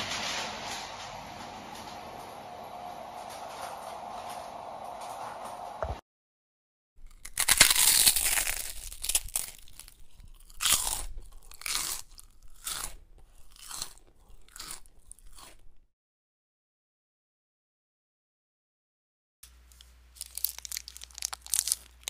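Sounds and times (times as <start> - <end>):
crisp vegetables crunching: 7.0 - 15.8, 19.6 - 22.0.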